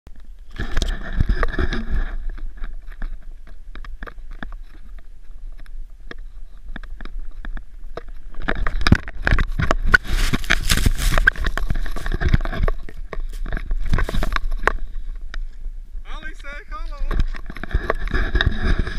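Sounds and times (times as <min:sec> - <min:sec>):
wind rumbling on microphone: 0:00.1 - 0:18.9
camera handling rustle: 0:08.3 - 0:14.8
scraping rush of snow: 0:09.9 - 0:12.1.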